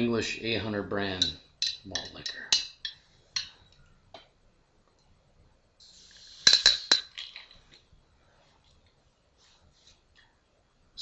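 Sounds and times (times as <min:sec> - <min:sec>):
short hiss: 0:05.8 - 0:07.0
glass bottle clinking: 0:06.4 - 0:07.6.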